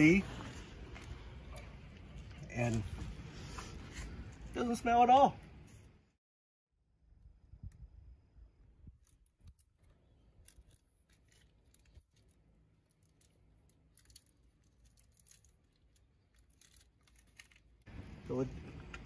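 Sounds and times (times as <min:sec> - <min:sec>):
faint clicks and rustles: 0:08.8 - 0:19.0.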